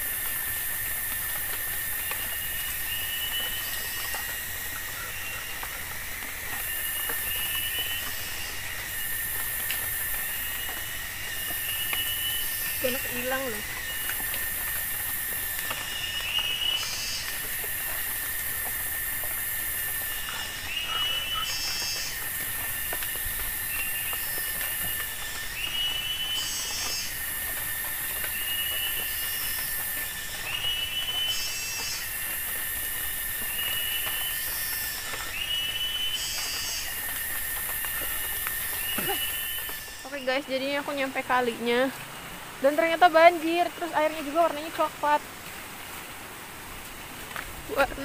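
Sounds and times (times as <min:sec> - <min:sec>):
insects high buzzing: 0:00.0 - 0:48.0
short insect chirps: 0:06.6 - 0:41.9.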